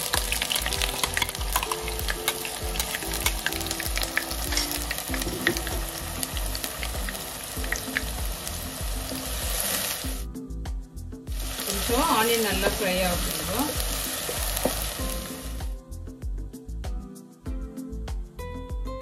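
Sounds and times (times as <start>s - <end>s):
onions sizzling in oil: 0.0s - 10.3s, 11.3s - 15.8s.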